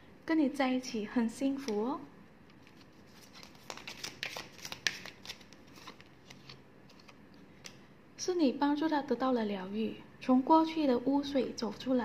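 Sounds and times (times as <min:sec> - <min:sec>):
cards clicking and snapping: 0:02.5 - 0:07.8.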